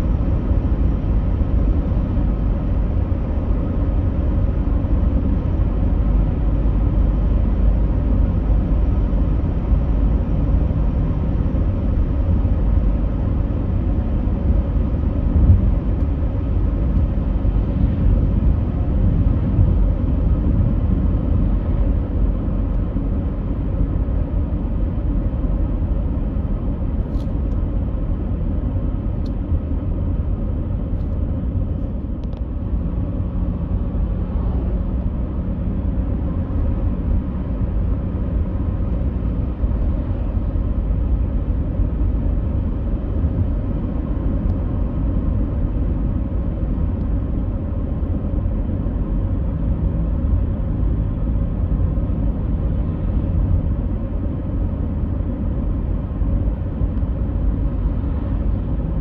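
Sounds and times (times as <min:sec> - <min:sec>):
low rumble: 0:00.0 - 0:59.0.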